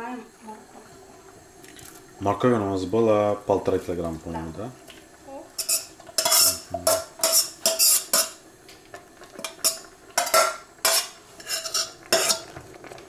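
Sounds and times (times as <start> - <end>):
utensil scraping enamel bowl: 5.6 - 8.4, 9.4 - 12.5.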